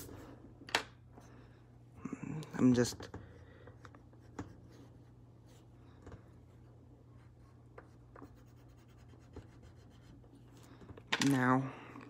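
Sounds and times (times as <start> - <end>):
low steady hum: 0.0 - 12.0
colored pencil scratching on paper: 3.9 - 5.7, 6.3 - 10.7.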